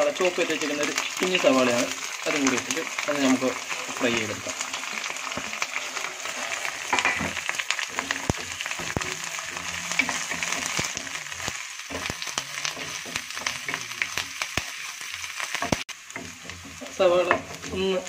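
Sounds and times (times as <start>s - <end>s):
vegetables sizzling in hot oil: 0.0s - 18.0s
wooden spatula tapping a pan: 6.9s - 18.0s.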